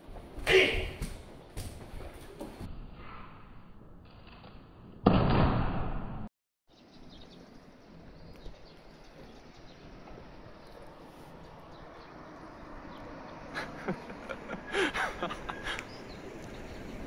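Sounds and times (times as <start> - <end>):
outdoor background noise: 6.7 - 17.0.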